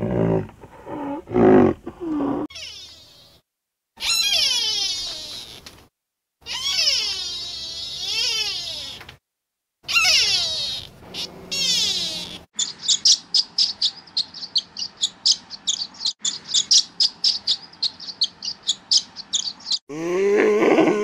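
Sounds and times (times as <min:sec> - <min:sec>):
loud animal call: 0:00.0 - 0:03.4, 0:04.0 - 0:05.6, 0:06.4 - 0:09.0, 0:09.8 - 0:12.5
gliding pitched animal call: 0:09.9 - 0:12.5
swallow twittering: 0:09.9 - 0:19.8.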